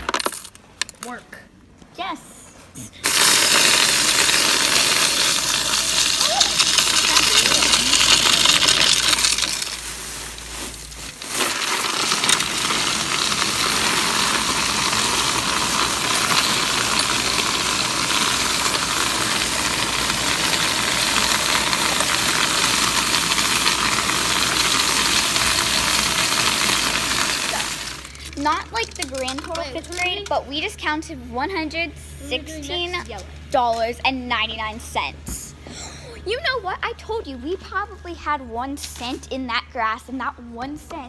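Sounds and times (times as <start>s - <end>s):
coins rattling through counting machine: 0.0s - 0.6s, 3.0s - 30.3s.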